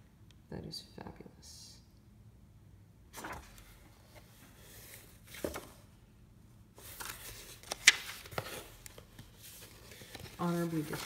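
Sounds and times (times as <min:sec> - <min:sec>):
paper rustling: 0:03.1 - 0:05.8, 0:06.8 - 0:11.0.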